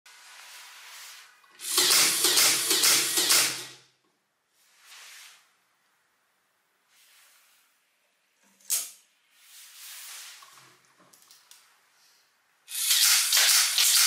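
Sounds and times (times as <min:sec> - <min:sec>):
rapid clacking of firing mechanism: 0:01.6 - 0:03.7, 0:12.7 - 0:14.0
toy motor whirring: 0:12.7 - 0:14.0.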